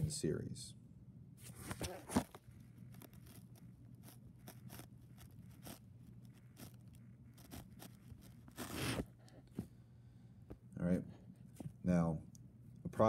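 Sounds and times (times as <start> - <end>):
steady low hum: 0.0 - 13.0
writing taps and scrapes on touchscreen: 2.1 - 9.7.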